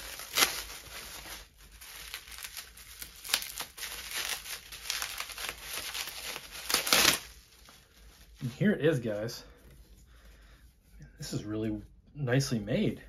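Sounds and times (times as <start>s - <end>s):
bubble wrap crinkling: 0.0s - 9.2s.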